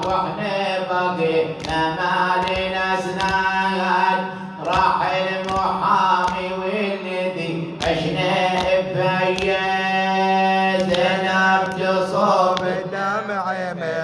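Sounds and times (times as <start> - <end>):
sharp percussive hits: 0.0 - 7.0
wordless chanted vocal: 0.0 - 14.0.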